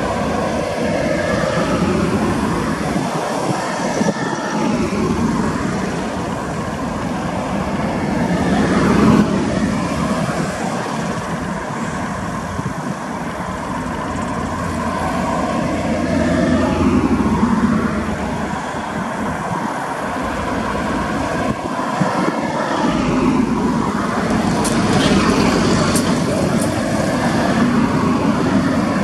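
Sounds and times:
diesel engine drone: 0.0s - 29.0s
wheel and rail noise: 0.0s - 29.0s.

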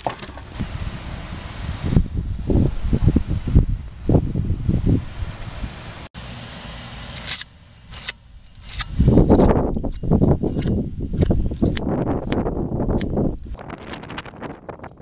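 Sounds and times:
metal tool scraping dirt: 7.1s - 13.2s.

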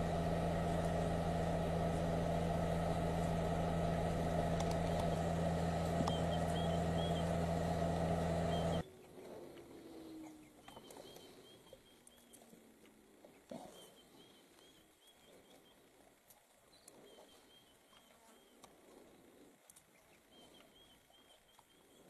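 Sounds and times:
vehicle engine idling: 0.0s - 8.8s
faint high chirps: 5.0s - 8.9s.

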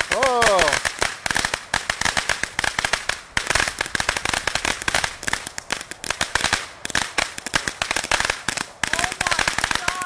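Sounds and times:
firework crackling bangs: 0.0s - 10.0s.

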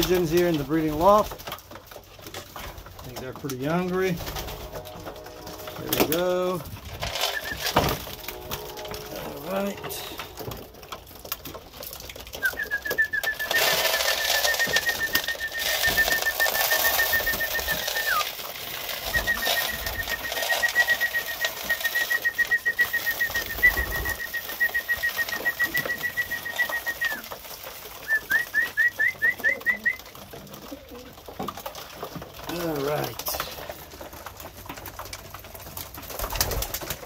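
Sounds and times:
pigeon wing flaps: 4.1s - 6.1s, 11.4s - 31.6s, 35.8s - 37.0s
trilled whistle: 7.1s - 10.5s, 12.4s - 18.2s, 19.1s - 27.2s
pigeons cooing: 11.9s - 31.6s.

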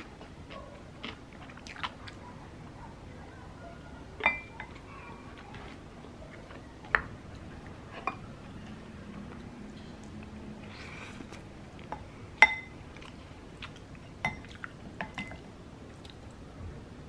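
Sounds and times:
wooden spoon clinking ceramic bowl: 4.2s - 4.8s.

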